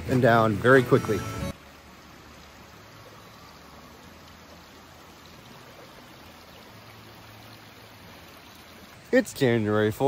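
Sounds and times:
creek water rushing: 0.0 - 10.0.

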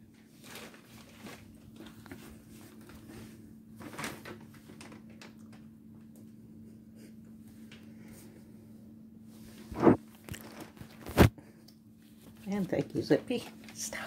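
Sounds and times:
plastic bag rustling and crinkling: 0.0 - 5.4, 9.6 - 11.3
steady low hum: 5.5 - 12.4.

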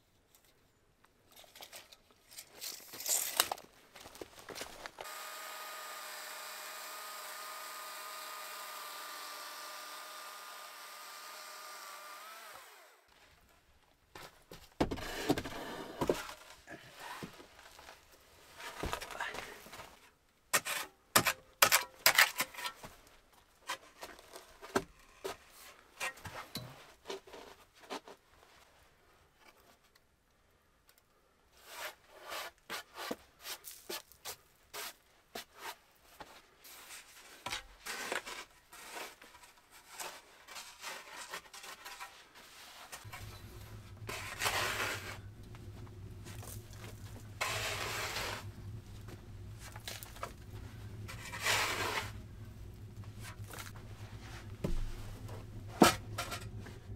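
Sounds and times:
shovel scraping soil: 14.9 - 17.8, 20.6 - 22.8, 31.6 - 35.8, 36.8 - 56.9
steady low hum: 43.1 - 56.9.

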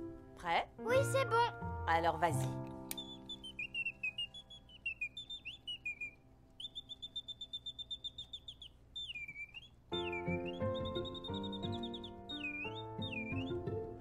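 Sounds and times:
background music: 0.0 - 6.5, 9.9 - 14.0
mechanical bird whistling and trilling: 2.9 - 13.7.

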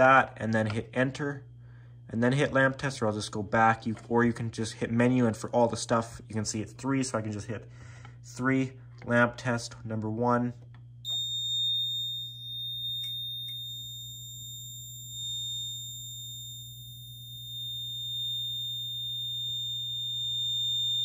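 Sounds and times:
high-pitched alarm buzzer tone: 11.1 - 21.0.

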